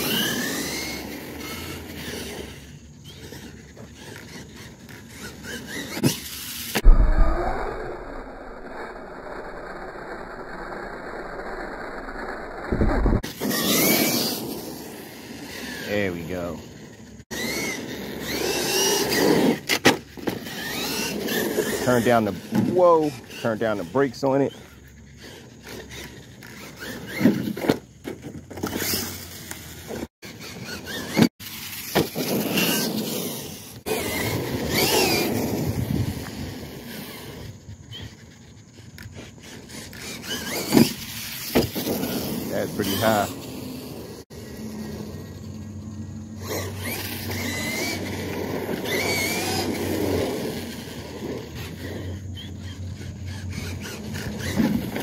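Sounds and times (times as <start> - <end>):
tyre and drivetrain noise: 0.0 - 6.9, 10.8 - 55.0
electric motor whining: 0.0 - 27.5, 28.4 - 55.0
tyres squealing and scuffing: 36.3 - 44.1, 46.4 - 55.0.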